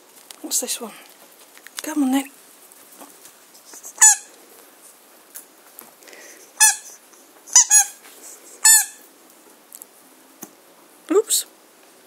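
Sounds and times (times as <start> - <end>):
squeaky dog toy squeaks: 4.0 - 4.3, 6.6 - 8.0, 8.6 - 9.0.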